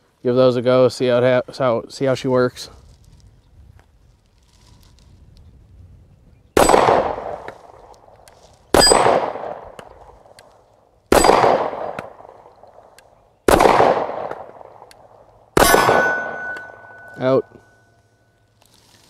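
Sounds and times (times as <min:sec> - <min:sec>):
pistol shots: 0:06.6 - 0:07.6, 0:08.7 - 0:10.0, 0:11.1 - 0:12.9, 0:13.5 - 0:17.4.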